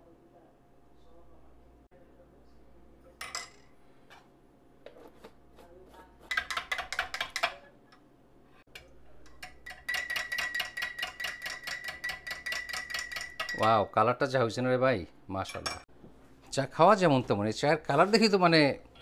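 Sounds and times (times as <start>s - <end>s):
teaspoon clinking in ceramic mug: 8.8s - 13.9s.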